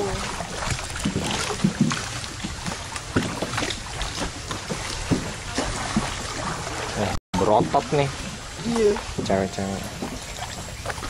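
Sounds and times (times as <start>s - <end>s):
oars splashing and knocking: 0.0s - 11.0s
wash of water: 0.0s - 11.0s.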